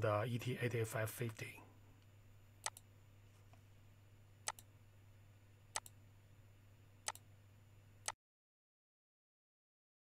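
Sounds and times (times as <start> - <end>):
faint low hum: 0.0 - 8.2
computer mouse clicks: 2.6 - 2.9, 4.4 - 4.7, 5.7 - 6.0, 7.0 - 7.2.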